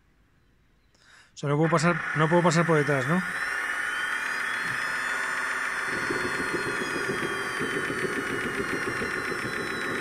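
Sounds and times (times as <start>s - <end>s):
turbine whine: 1.6s - 10.0s
rough crackling rumble: 5.9s - 10.0s.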